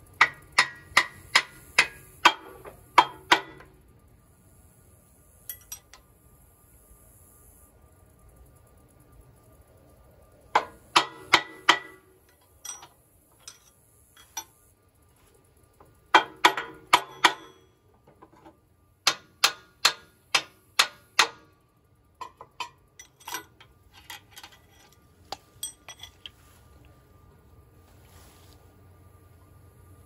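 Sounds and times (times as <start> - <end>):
hammer striking steel: 0.2 - 3.7, 10.6 - 12.0, 16.1 - 17.7, 19.0 - 21.5.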